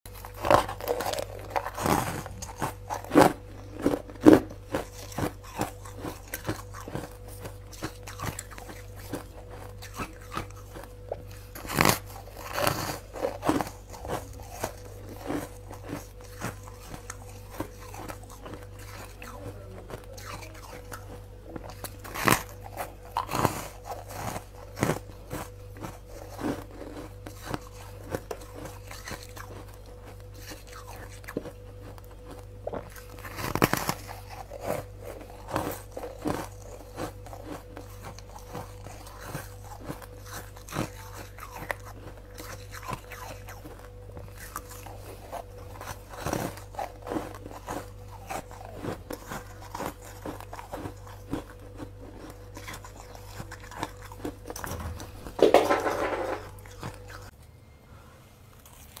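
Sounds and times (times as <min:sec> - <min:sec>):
faint steady hum: 0:00.0 - 0:59.0
crunchy chewing of frost: 0:00.1 - 0:57.4, 0:58.5 - 0:59.0.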